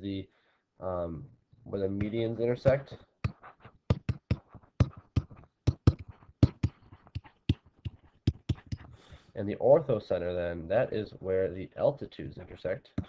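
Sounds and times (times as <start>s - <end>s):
pen ticking and scratching: 2.0s - 9.0s.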